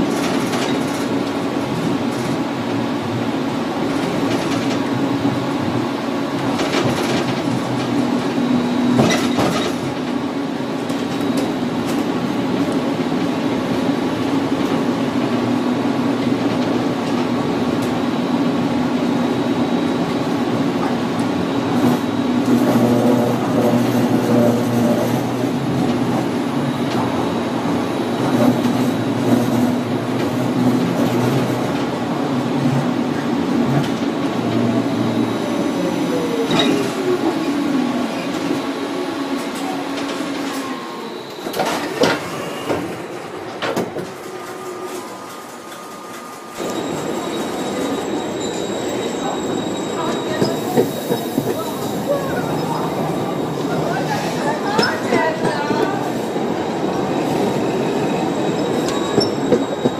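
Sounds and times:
electric tram humming and whining: 0.0s - 59.9s.

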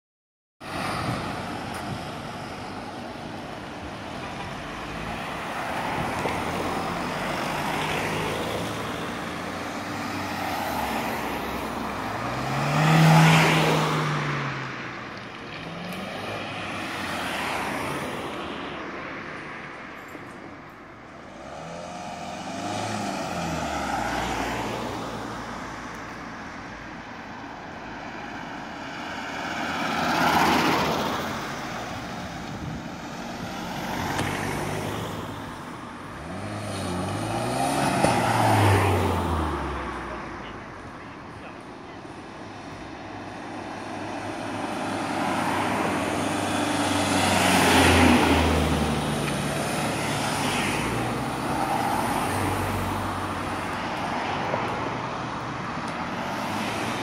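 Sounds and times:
cars driving past: 0.6s - 57.0s.

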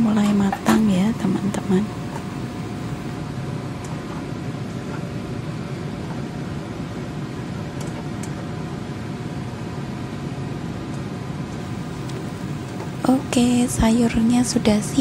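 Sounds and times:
mechanical hum with whining tones: 0.0s - 15.0s.

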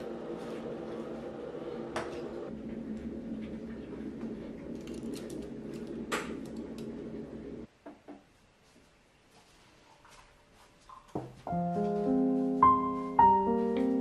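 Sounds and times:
steady low hum: 0.0s - 7.7s.

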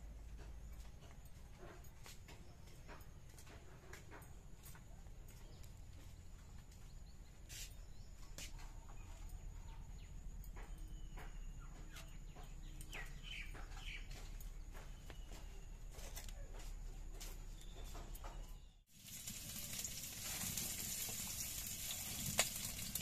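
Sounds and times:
bird chirps: 5.3s - 16.6s, 17.2s - 18.8s.

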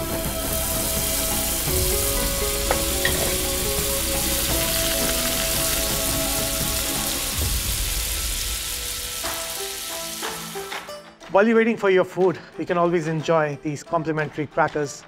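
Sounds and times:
food sizzling in hot oil: 0.0s - 10.9s.

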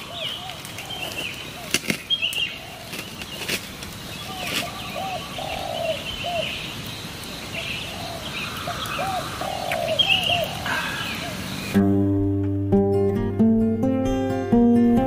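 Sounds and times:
birds chirping: 0.0s - 11.8s
crackling wood fire: 0.0s - 11.8s
fire popping: 0.0s - 11.8s.

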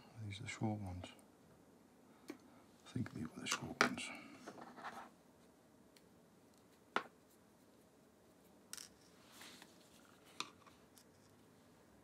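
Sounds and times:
soft rustle: 6.5s - 12.0s.

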